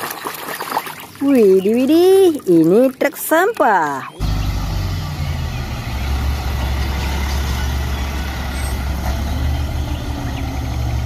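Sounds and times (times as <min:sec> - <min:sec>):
diesel engine rumbling: 0:03.6 - 0:11.0.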